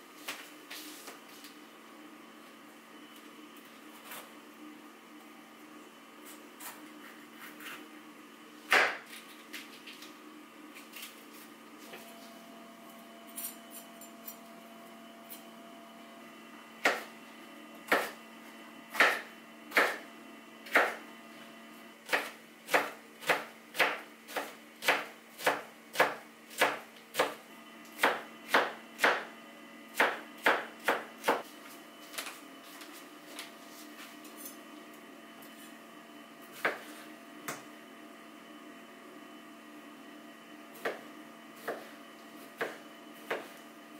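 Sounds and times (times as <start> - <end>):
knife chopping on cutting board: 8.7 - 9.2, 16.8 - 17.1, 17.9 - 18.2, 18.9 - 20.0, 20.7 - 21.0, 22.1 - 27.4, 28.0 - 29.3, 29.9 - 31.4, 36.5 - 36.9, 40.8 - 41.0, 41.6 - 41.9, 42.6 - 43.6.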